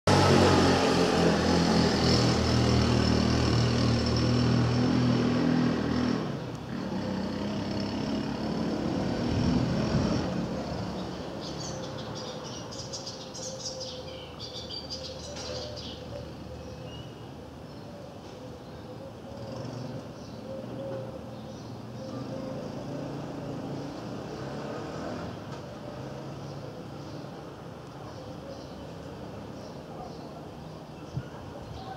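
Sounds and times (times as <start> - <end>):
birds chirping: 10.6 - 24.6, 25.3 - 31.9.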